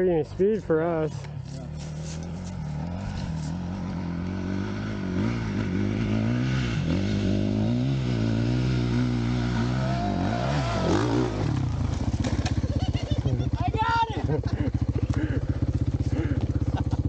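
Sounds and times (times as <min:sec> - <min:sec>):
dirt bike engine revving: 0:00.7 - 0:17.0.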